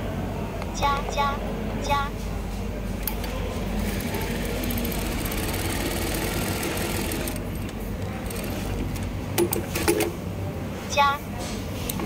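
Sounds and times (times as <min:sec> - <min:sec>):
sewing machine stitching: 0:03.8 - 0:07.4, 0:08.2 - 0:10.1.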